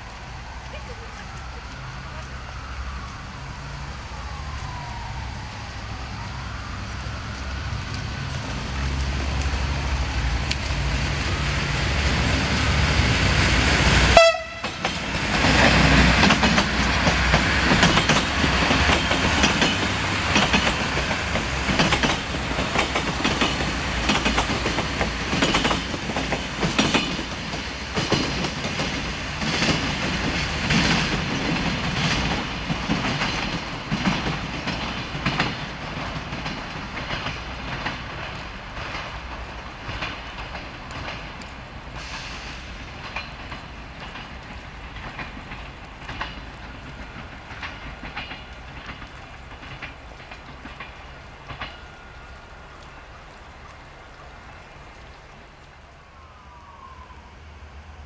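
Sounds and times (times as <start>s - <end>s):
diesel train engine drone: 0.0s - 58.0s
wheels clicking over rail joints: 6.7s - 56.0s.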